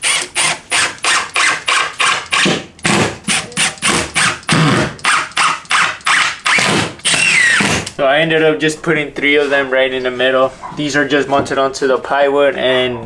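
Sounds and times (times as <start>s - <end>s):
drill driving screws: 0.0s - 8.0s.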